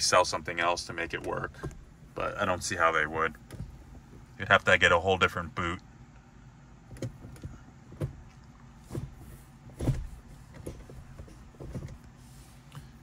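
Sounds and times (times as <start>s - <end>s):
soft knocks and clunks: 1.1s - 2.3s, 3.4s - 4.3s, 6.9s - 12.1s.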